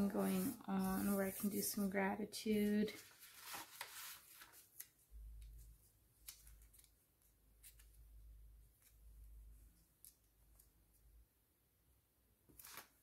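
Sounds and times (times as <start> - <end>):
paper rustling: 0.0 - 1.8, 2.7 - 7.0, 12.5 - 13.0.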